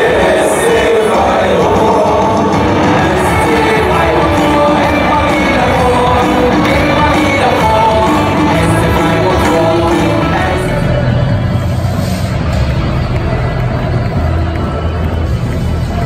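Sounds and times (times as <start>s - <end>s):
crowd chanting in unison: 0.0s - 11.2s
stadium crowd noise: 0.0s - 16.0s.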